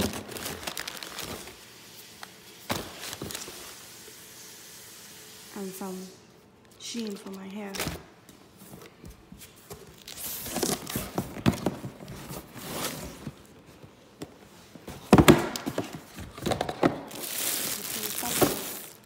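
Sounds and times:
plastic bag crinkling: 0:00.0 - 0:01.6, 0:17.0 - 0:19.0
rummaging in cardboard box: 0:00.0 - 0:01.6, 0:02.7 - 0:03.8, 0:08.6 - 0:13.8, 0:14.8 - 0:19.0.

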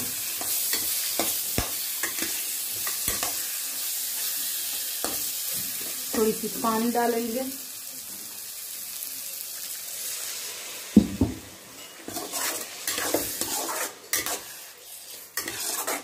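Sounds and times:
food sizzling in hot oil: 0:00.0 - 0:16.0
spatula scraping pan: 0:11.8 - 0:16.0.

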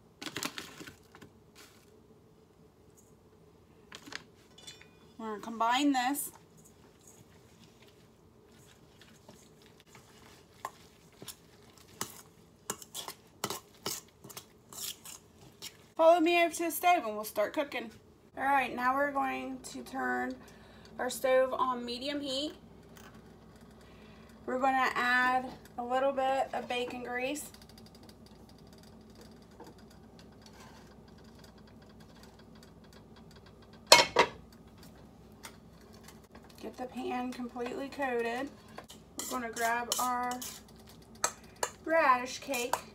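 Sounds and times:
cookware clinking together: 0:04.6 - 0:05.2
spoon stirring wet mixture: 0:06.2 - 0:16.1, 0:21.9 - 0:42.9.

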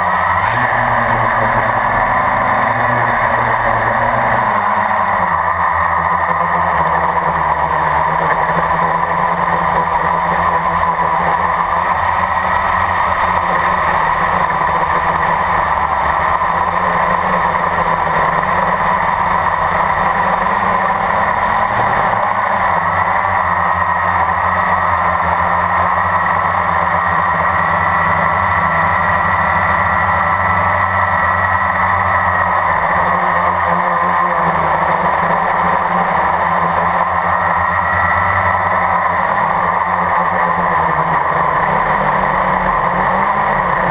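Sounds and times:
quadcopter motors whirring: 0:00.0 - 0:43.9.

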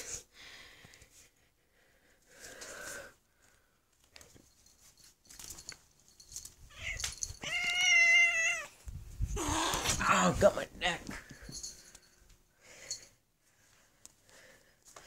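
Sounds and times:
cat meowing: 0:06.7 - 0:08.8.

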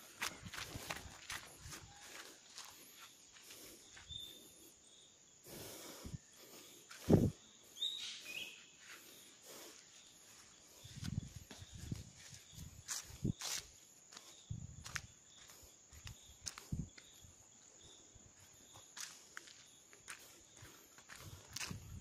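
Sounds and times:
soft footsteps: 0:00.0 - 0:04.1
high bird chirps: 0:07.8 - 0:08.8.

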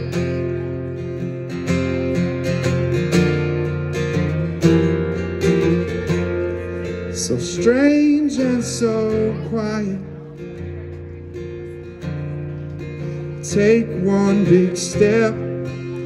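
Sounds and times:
acoustic guitar strumming: 0:00.0 - 0:16.0
man singing: 0:06.1 - 0:10.7, 0:13.2 - 0:16.0.

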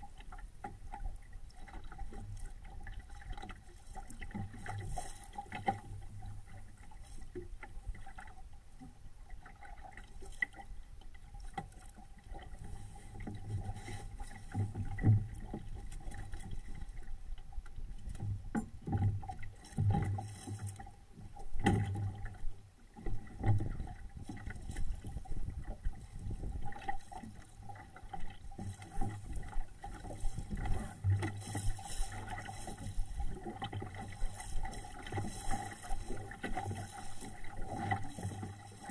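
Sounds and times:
water splashing against hull: 0:00.0 - 0:38.9
wind rumbling on microphone: 0:23.0 - 0:38.9.

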